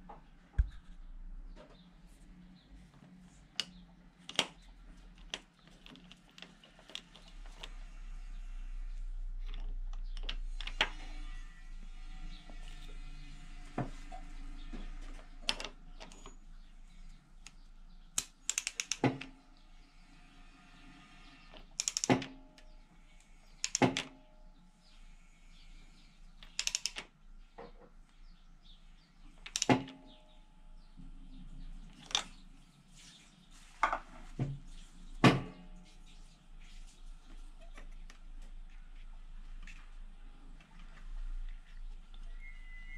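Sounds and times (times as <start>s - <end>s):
wrench clicking on metal: 18.2s - 19.1s, 21.8s - 22.3s, 26.4s - 27.0s.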